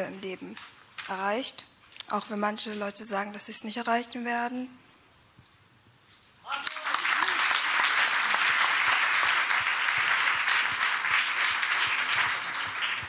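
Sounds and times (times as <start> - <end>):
audience applause: 6.5 - 13.0.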